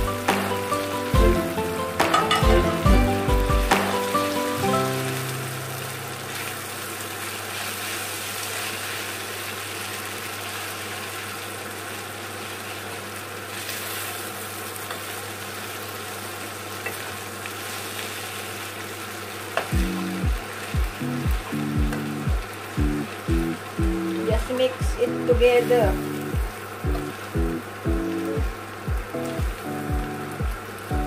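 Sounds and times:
background music: 0.0 - 6.1, 19.8 - 31.0
noodles sizzling in a frying pan: 0.0 - 31.0.

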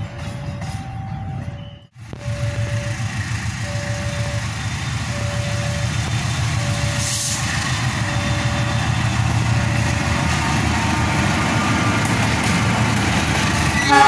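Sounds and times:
electronic warning tone: 0.0 - 10.2
diesel train rumbling: 0.0 - 14.0.

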